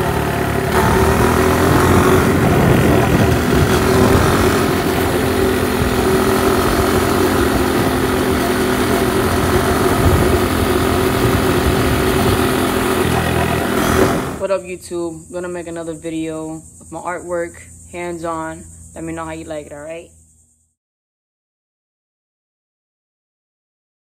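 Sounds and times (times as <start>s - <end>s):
road noise rushing: 0.0s - 14.4s
vehicle motor running: 0.0s - 14.4s.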